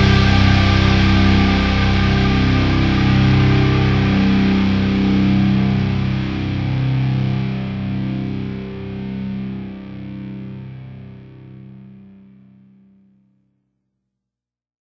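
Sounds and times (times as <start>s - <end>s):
rock music with distorted guitar: 0.0s - 11.6s.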